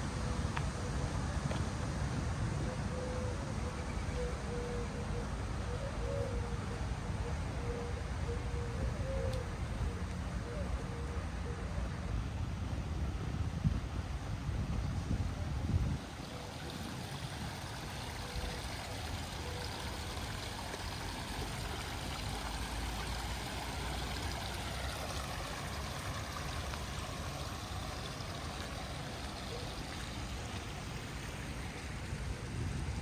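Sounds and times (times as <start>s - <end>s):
wind buffeting microphone: 12.8s - 17.8s.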